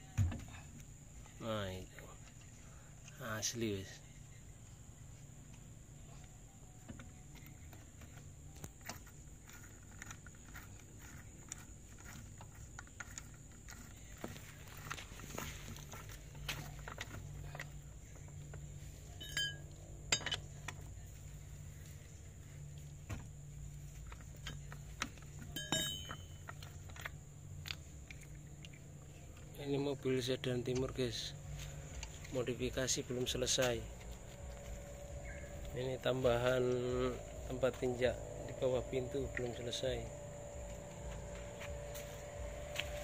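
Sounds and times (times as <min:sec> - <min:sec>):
low steady hum: 0:00.0 - 0:43.0
wheel nuts clicking on studs: 0:19.2 - 0:20.8, 0:23.9 - 0:27.9.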